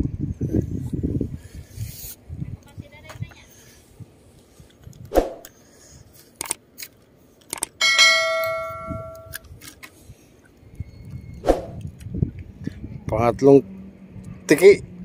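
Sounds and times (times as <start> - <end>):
bright bell ding: 7.8 - 9.4.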